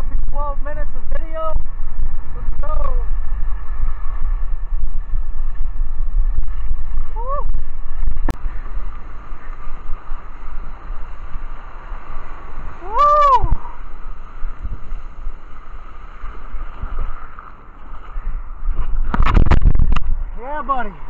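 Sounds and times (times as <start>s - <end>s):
wind rumbling on microphone: 0.0s - 21.0s
water sloshing against surfboard: 13.5s - 21.0s.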